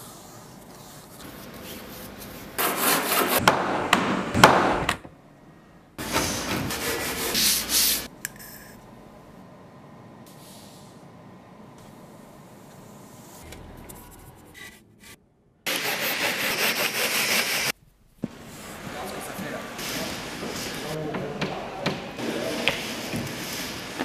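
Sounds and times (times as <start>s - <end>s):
sanding block scraping hard surface: 15.7s - 17.7s.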